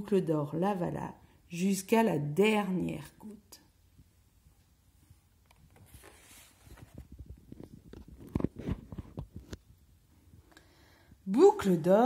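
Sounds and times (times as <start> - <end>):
card pages sliding: 5.6 - 9.2.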